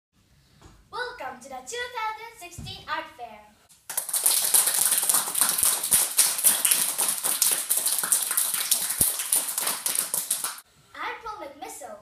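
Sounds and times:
children clapping: 3.9s - 10.6s.

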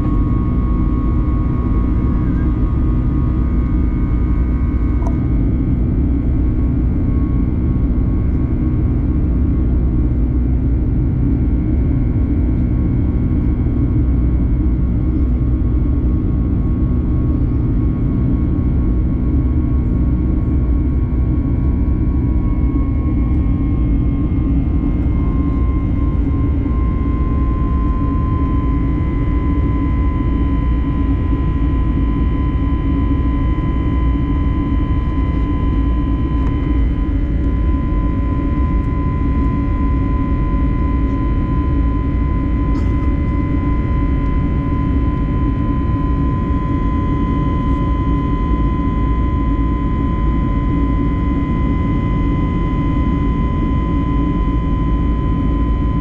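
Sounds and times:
jet engine rumble in cabin: 0.0s - 56.0s
thin engine whine: 0.0s - 56.0s.

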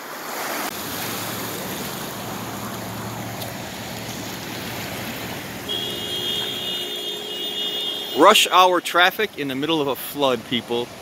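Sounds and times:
floodwater sloshing: 0.0s - 11.0s
vehicle engine running low: 0.7s - 8.0s.

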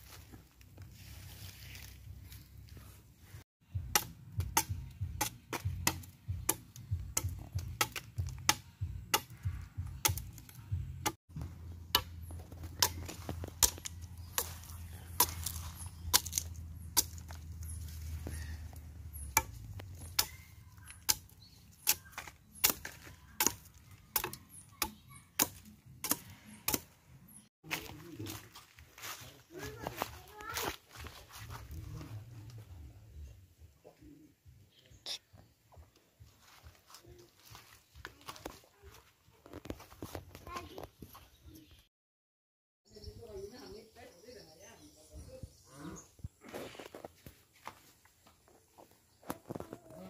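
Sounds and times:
machete chopping wood: 3.8s - 26.9s.

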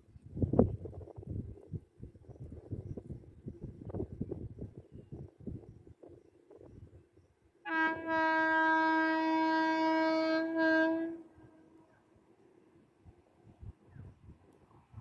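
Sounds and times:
locomotive horn: 7.6s - 11.9s.

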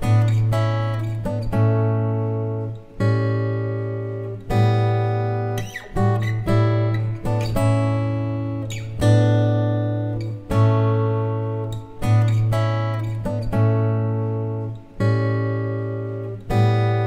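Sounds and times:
acoustic guitar chords strummed: 0.0s - 17.0s.

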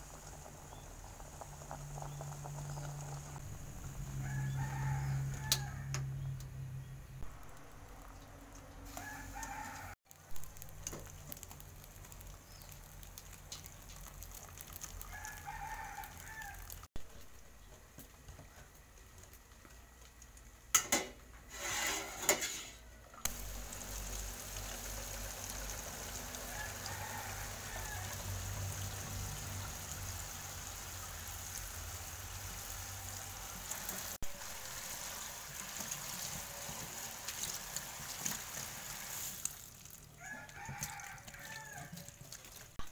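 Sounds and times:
rooster crowing: 3.9s - 6.3s, 8.8s - 10.0s, 15.1s - 16.8s, 26.2s - 28.7s, 40.2s - 42.2s
tap water running into colander: 23.3s - 42.8s.

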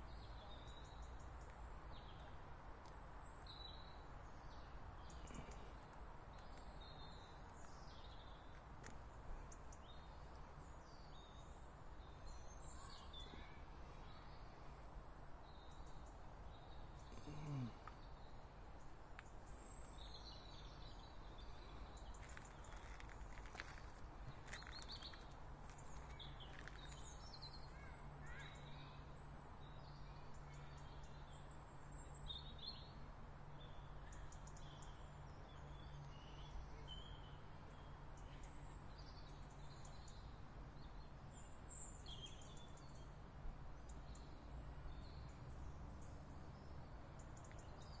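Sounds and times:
birds chirping: 0.0s - 48.0s.

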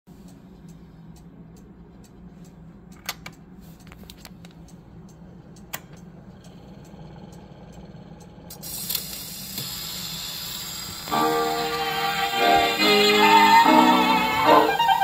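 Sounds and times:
light regular ticking: 0.1s - 10.6s
turntable low hum: 0.1s - 15.0s.

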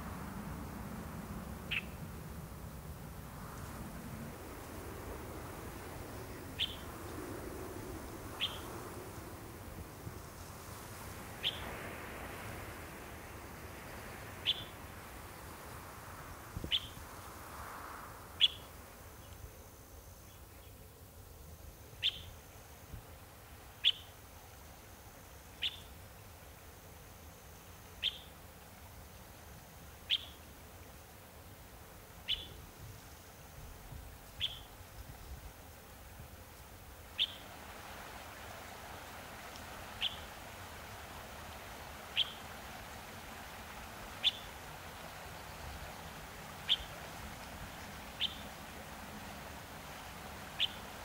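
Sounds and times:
faint outdoor hiss: 0.0s - 51.0s
bird chirping: 1.7s - 2.0s, 8.4s - 8.6s, 32.3s - 32.6s, 34.4s - 34.7s, 37.2s - 37.4s, 40.0s - 40.3s, 42.2s - 42.4s, 44.2s - 44.5s, 46.6s - 46.9s, 47.8s - 48.5s, 50.6s - 50.8s.

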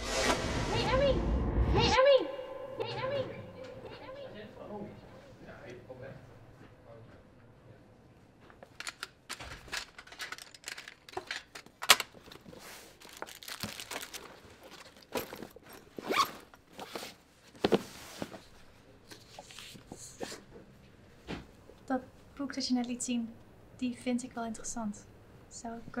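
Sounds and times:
paper and books rustling: 8.5s - 20.6s.

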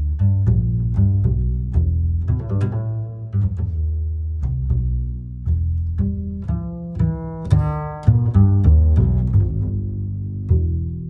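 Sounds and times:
low bass line: 0.0s - 11.0s.

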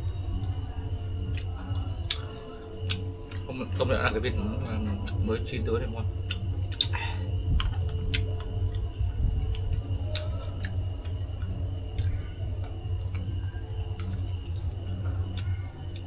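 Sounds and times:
low steady rumble: 0.0s - 16.0s
chewing: 1.3s - 3.5s, 6.3s - 16.0s.

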